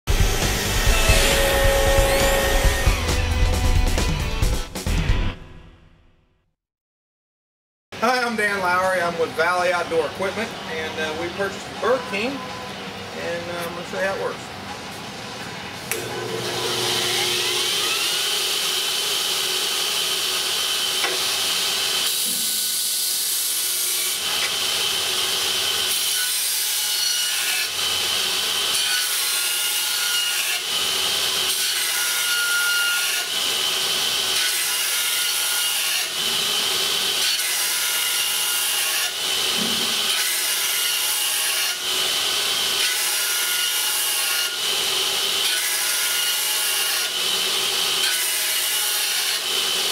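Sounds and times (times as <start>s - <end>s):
belt grinder running: 0.1s - 3.4s, 15.9s - 26.4s, 29.7s - 35.0s, 35.6s - 49.9s
steel blade grinding on belt: 0.6s - 3.0s.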